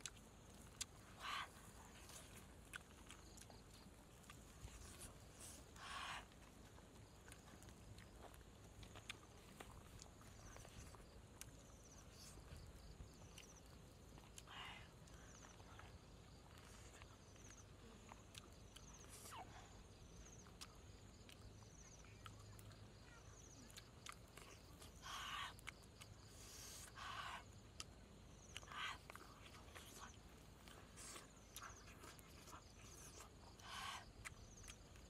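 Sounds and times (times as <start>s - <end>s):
person chewing and smacking: 0.0s - 19.4s, 20.0s - 22.8s, 23.7s - 35.0s.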